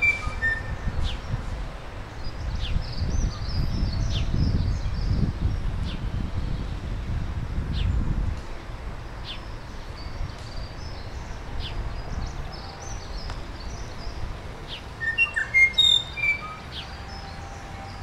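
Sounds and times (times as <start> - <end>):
clear whistled bird notes: 0.0 - 1.2, 12.5 - 18.0
songbirds chirping: 0.0 - 18.0.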